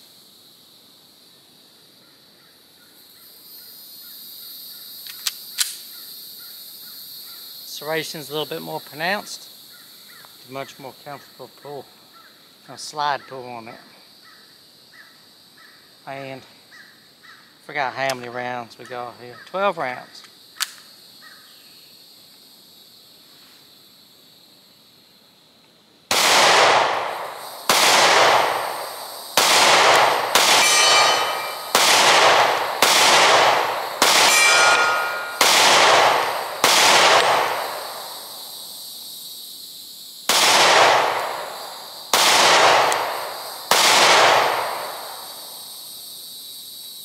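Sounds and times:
pistol shots echoing: 0:26.1 - 0:38.1, 0:40.3 - 0:45.2
metallic ringing: 0:30.6 - 0:31.7, 0:34.3 - 0:35.4.

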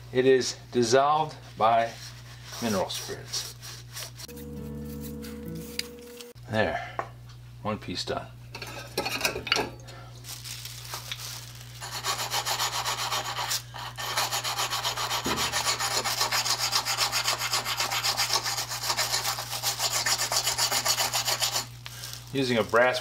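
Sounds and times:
wire brush scrubbing metal: 0:11.8 - 0:21.7.

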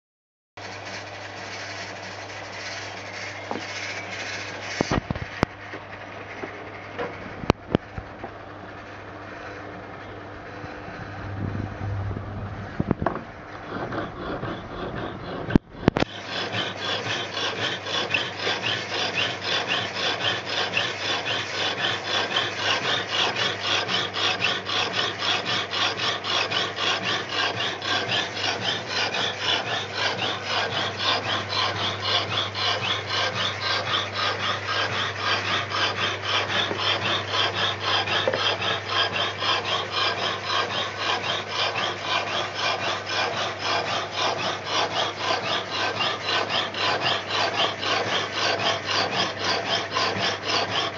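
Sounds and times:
hacksaw rasping through steel: 0:00.6 - 0:05.5, 0:13.5 - 0:50.9
electric motor humming: 0:10.6 - 0:50.9.

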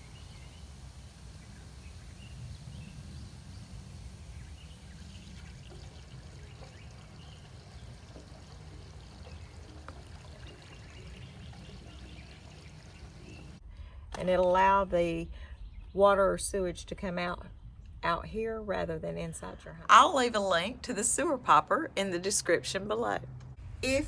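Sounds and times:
water pouring over ground: 0:03.2 - 0:13.6.

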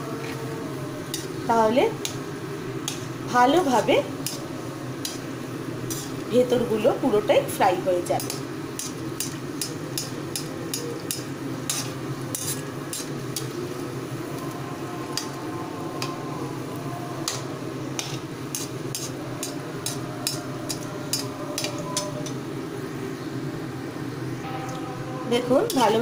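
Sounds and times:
chicken sizzling in hot oil: 0:00.9 - 0:23.5
metal spoon clinking against pan: 0:18.0 - 0:22.4.

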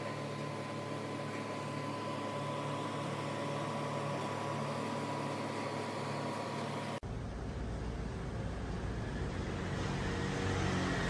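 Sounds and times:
faint high whine: 0:00.0 - 0:10.7
mechanical hum: 0:00.0 - 0:11.0.

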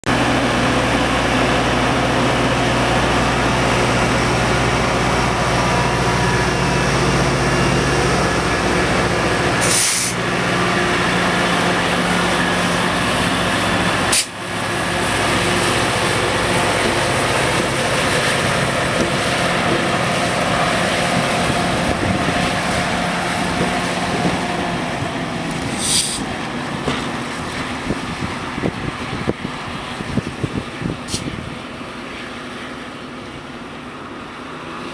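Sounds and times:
diesel locomotive engine: 0:00.0 - 0:34.9
train coaches rumbling on rails: 0:00.1 - 0:34.9
short high hisses: 0:09.6 - 0:10.2, 0:14.1 - 0:14.4, 0:25.8 - 0:26.3.

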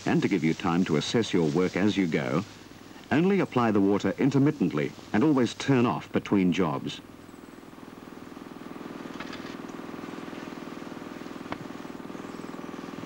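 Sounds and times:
pump engine running: 0:06.6 - 0:13.0.

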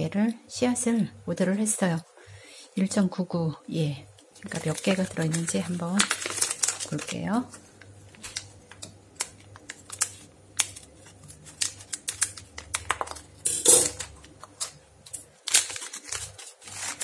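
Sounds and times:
foil packet crinkling: 0:04.2 - 0:17.0.

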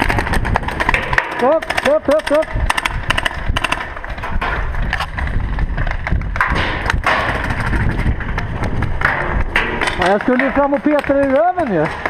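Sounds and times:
camera movement rumbling and scuffing: 0:02.4 - 0:12.0.

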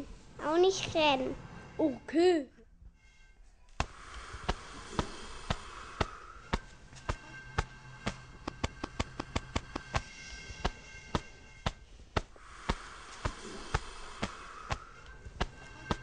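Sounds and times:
hiss: 0:03.8 - 0:16.0
sharp tapping footsteps: 0:03.8 - 0:16.0.

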